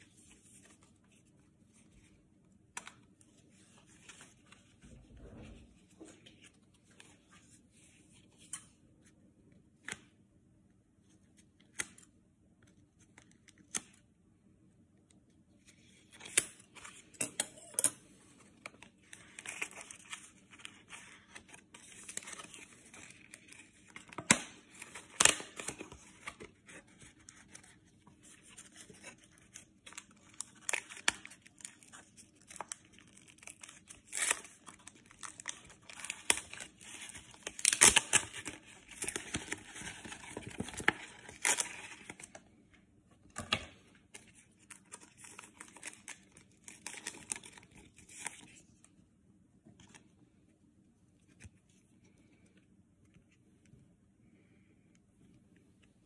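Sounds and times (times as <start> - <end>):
paper crinkling: 18.3 - 42.4, 44.0 - 48.7.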